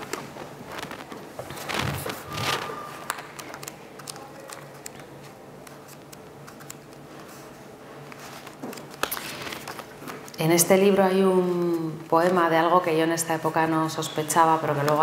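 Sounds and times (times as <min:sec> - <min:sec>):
book handling noise: 0:00.0 - 0:10.4
book pages rustling: 0:00.0 - 0:10.4
small clicks of pages: 0:00.1 - 0:07.4, 0:08.0 - 0:10.4.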